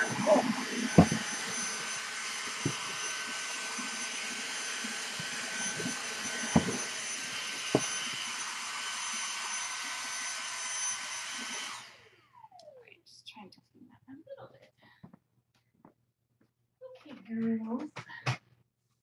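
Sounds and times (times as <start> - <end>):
vacuum cleaner motor whine: 0.0 - 12.8.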